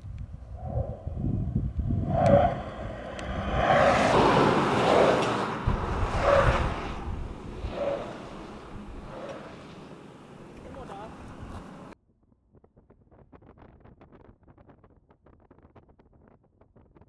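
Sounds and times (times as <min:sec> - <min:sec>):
wind buffeting microphone: 0:00.0 - 0:12.0
tyre and road noise: 0:00.4 - 0:12.0.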